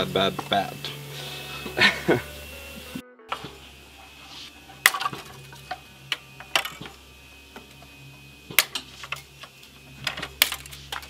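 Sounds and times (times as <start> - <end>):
steady low hum: 0.0 - 11.0
metal parts clinking: 4.8 - 5.8, 8.6 - 11.0.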